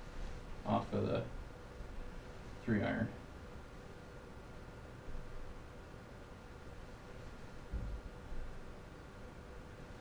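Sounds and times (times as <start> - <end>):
faint steady hum: 0.0 - 10.0
low thud: 7.7 - 8.1.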